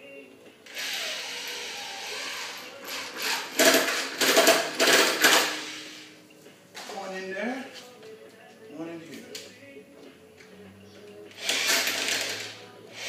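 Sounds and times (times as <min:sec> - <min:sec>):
cordless drill driving screws: 0:00.7 - 0:06.1, 0:11.3 - 0:13.0.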